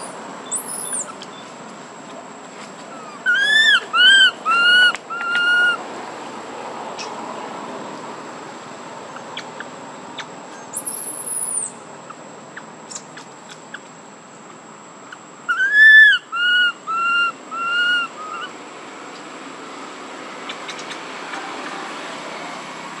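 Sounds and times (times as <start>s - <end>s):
animal high calls: 2.9s - 5.8s, 15.5s - 18.5s.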